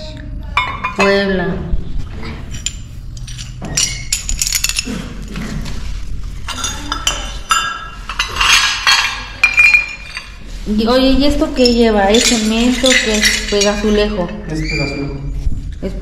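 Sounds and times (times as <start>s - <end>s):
ceramic shards clinking: 2.5s - 5.1s, 6.4s - 10.4s, 11.6s - 14.5s.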